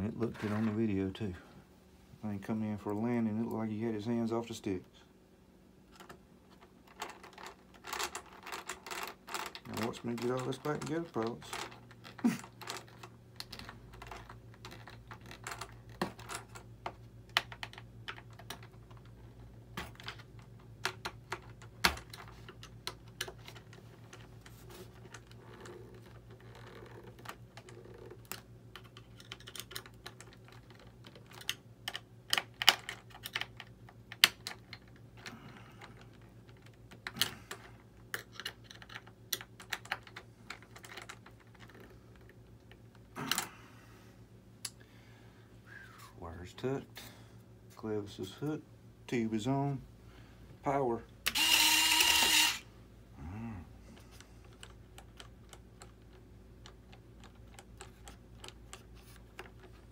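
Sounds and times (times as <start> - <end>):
plastic parts clicking: 25.0 - 43.5
low hum: 40.4 - 57.3.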